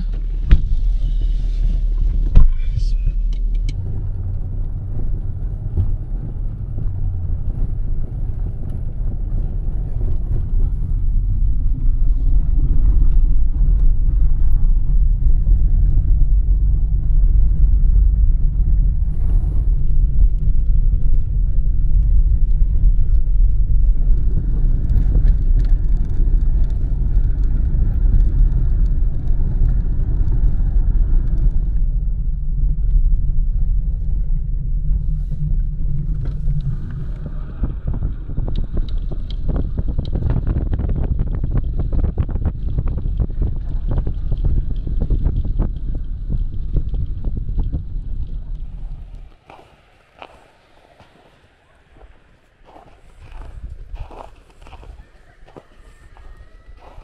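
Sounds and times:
car driving on rough track: 0:00.0 - 0:57.0.

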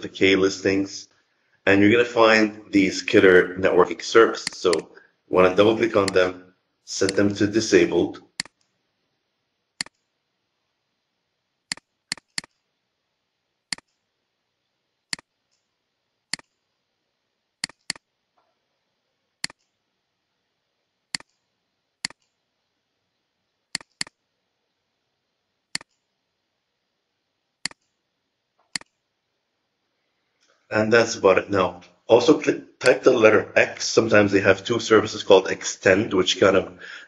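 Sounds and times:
computer mouse clicking: 0:04.4 - 0:04.9, 0:08.4 - 0:08.7, 0:09.8 - 0:10.1, 0:11.7 - 0:12.6, 0:13.7 - 0:14.0, 0:15.1 - 0:15.7, 0:16.3 - 0:16.6, 0:17.6 - 0:18.1, 0:19.4 - 0:19.8, 0:21.1 - 0:21.4, 0:22.0 - 0:22.4, 0:23.7 - 0:24.2, 0:25.7 - 0:26.1, 0:27.6 - 0:28.0, 0:28.6 - 0:29.0.

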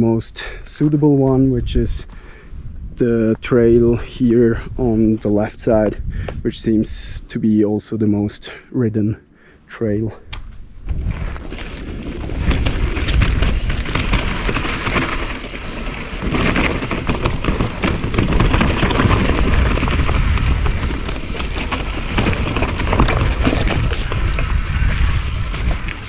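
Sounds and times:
wind rumble on microphone: 0:00.0 - 0:07.4, 0:10.1 - 0:26.0
bike tyres crunching over gravel: 0:10.3 - 0:26.0
bike rattling: 0:10.4 - 0:26.0.

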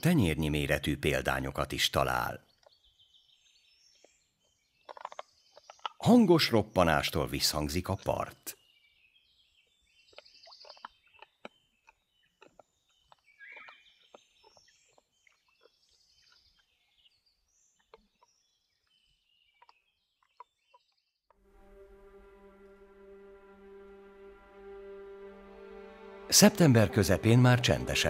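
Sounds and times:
birds calling: 0:00.0 - 0:21.4
boar crunching mussel shells: 0:04.0 - 0:06.3, 0:10.0 - 0:21.0
music: 0:21.4 - 0:28.0.

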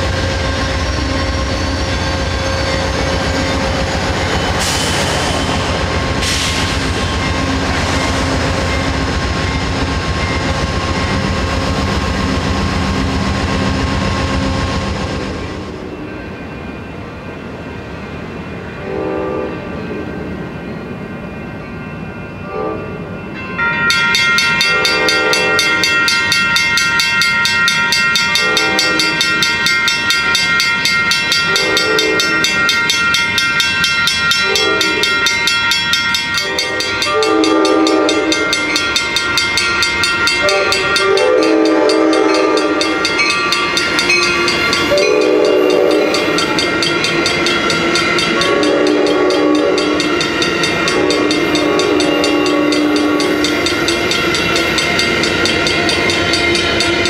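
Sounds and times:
locomotive bell ringing: 0:00.0 - 0:57.0
train wheels rolling by: 0:00.0 - 0:57.0
train horn blasts: 0:18.8 - 0:19.8, 0:22.4 - 0:23.0, 0:24.6 - 0:26.0, 0:28.4 - 0:29.3, 0:31.4 - 0:32.6, 0:34.4 - 0:35.3, 0:36.4 - 0:38.8, 0:40.3 - 0:43.0, 0:44.8 - 0:46.4, 0:48.2 - 0:54.0.

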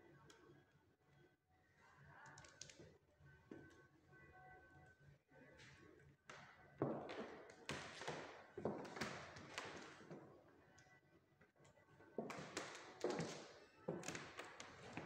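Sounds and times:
dull thumps and taps with echo: 0:06.3 - 0:10.3, 0:12.2 - 0:15.0.

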